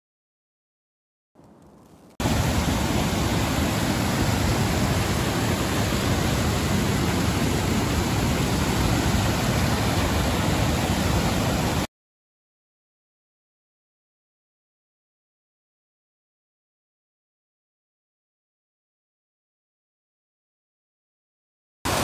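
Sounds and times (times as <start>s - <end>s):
loud rushing noise: 2.2s - 11.9s.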